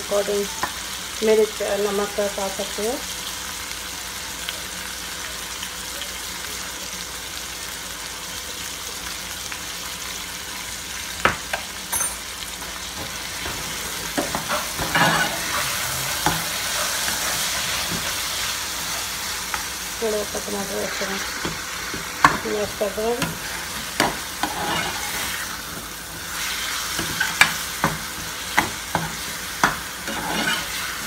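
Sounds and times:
food sizzling in a frying pan: 0.0s - 31.0s
metal spoon scraping a pan: 14.2s - 18.3s, 23.2s - 25.5s, 28.6s - 31.0s.

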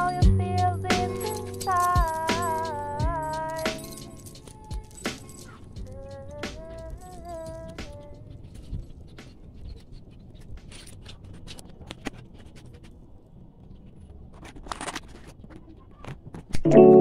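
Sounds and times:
keyboard music: 0.0s - 7.9s, 16.7s - 17.0s.

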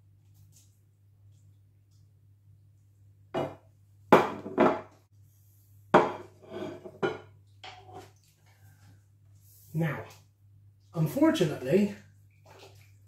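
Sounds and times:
plates set down on worktop: 3.4s - 5.0s, 6.0s - 7.9s.

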